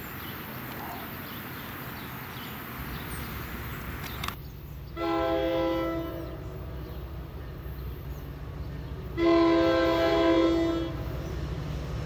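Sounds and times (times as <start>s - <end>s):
train air horn chord: 5.0s - 6.4s, 9.2s - 11.0s.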